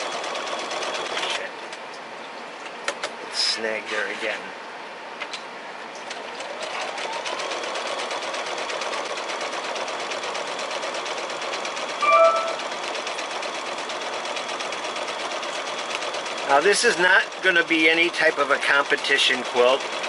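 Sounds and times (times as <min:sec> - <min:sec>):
sewing machine stitching: 0:00.0 - 0:01.5, 0:06.3 - 0:20.0
short loud tone: 0:12.0 - 0:12.8.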